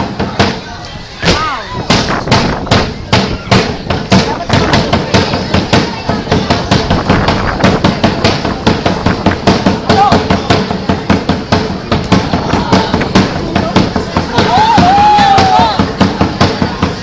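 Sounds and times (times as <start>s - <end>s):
voices shouting: 0.0s - 2.2s, 9.7s - 17.0s
rapid drumbeat: 0.0s - 17.0s.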